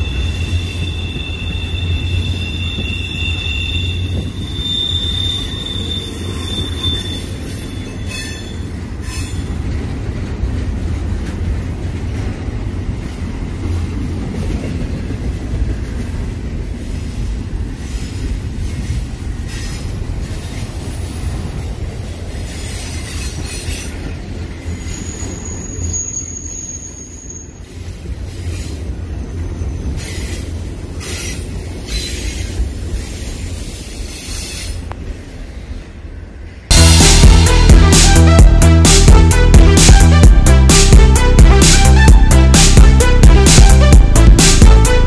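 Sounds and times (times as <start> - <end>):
wheel squeal: 0.0 - 9.5, 24.8 - 27.8
train wheels rumbling on rail: 0.0 - 45.0.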